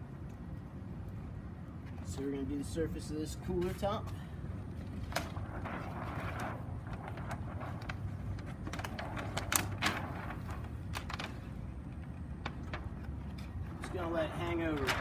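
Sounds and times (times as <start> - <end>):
plastic sheet crinkling: 5.0 - 15.0.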